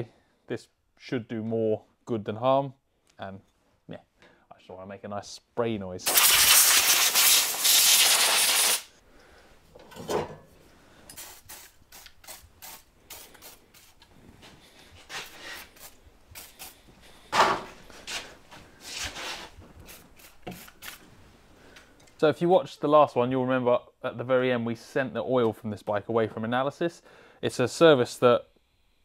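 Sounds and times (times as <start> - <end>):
aerosol spray hissing: 6.1 - 8.9, 11.1 - 14.0, 15.1 - 16.9, 19.8 - 21.1.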